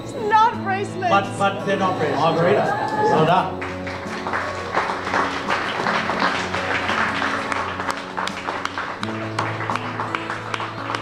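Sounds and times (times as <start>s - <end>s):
quiet background music: 0.0s - 11.0s
audience applauding: 2.7s - 11.0s.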